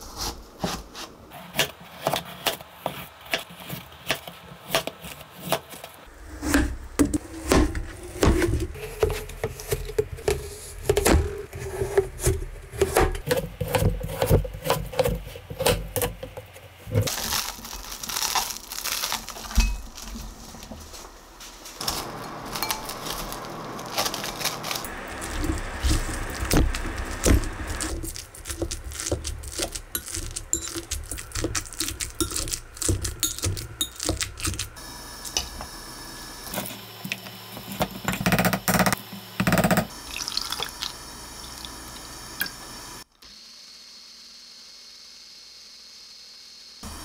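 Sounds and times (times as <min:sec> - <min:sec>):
knife chopping on plastic board: 0:06.4 - 0:16.4, 0:24.9 - 0:34.8
potato masher crushing in glass bowl: 0:07.5 - 0:19.5, 0:21.8 - 0:35.4
plastic wrap crinkling: 0:17.1 - 0:34.8.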